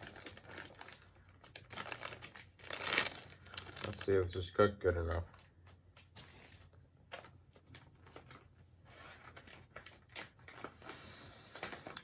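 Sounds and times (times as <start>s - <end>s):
foil pouch crinkling: 0.0s - 5.7s, 9.2s - 12.0s.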